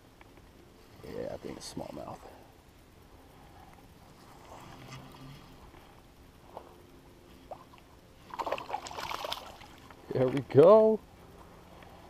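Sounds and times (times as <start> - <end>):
faint ticks: 2.2 - 8.0, 11.3 - 12.0
fish splashing at water surface: 8.3 - 9.8.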